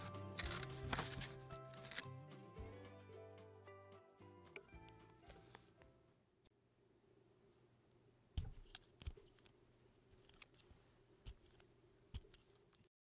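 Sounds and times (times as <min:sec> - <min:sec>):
knife shaving soap: 0:11.2 - 0:12.9.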